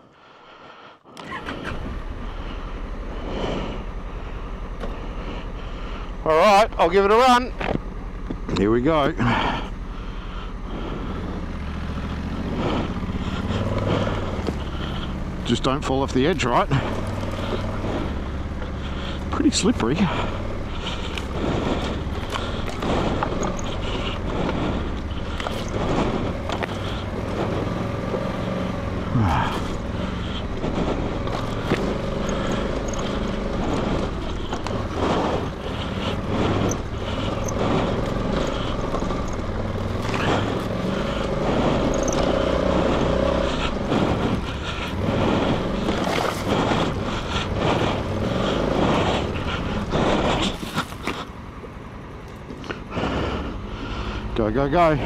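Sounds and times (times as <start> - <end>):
motorcycle engine at low revs: 0.0 - 55.0
knocks and scrapes: 12.5 - 51.4.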